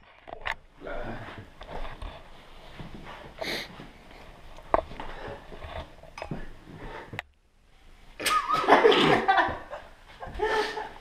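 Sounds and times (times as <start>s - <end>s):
soft rustling: 0.0s - 7.2s.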